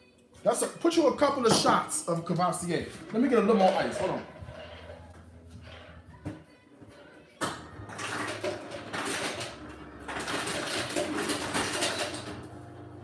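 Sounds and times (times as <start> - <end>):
ice cubes clattering: 7.8 - 12.4.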